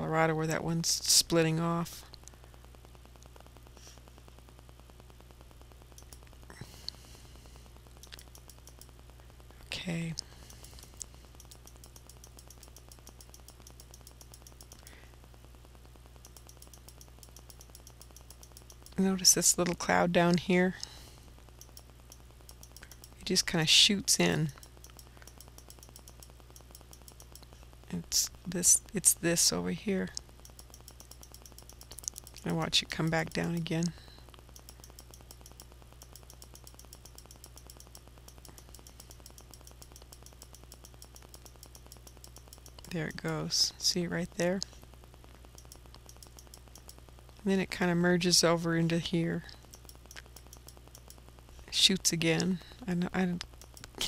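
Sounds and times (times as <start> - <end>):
low steady hum: 0.0 - 54.0
rapid computer mouse clicks: 5.9 - 9.2, 10.1 - 15.2, 16.2 - 27.9, 30.1 - 48.2, 49.5 - 54.0
fast even ticking: 5.9 - 9.4, 10.1 - 15.4, 16.1 - 48.4, 49.5 - 54.0.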